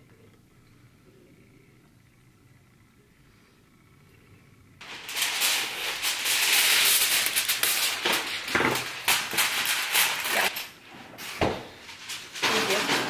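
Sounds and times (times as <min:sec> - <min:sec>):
spice grinder crackling: 0:04.8 - 0:10.8
aluminium foil crinkling: 0:04.8 - 0:13.0.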